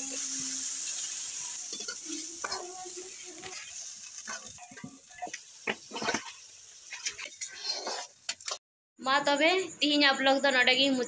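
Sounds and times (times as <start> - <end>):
food sizzling in hot oil: 0.0 - 8.6
metal ladle scraping pan: 3.4 - 8.6.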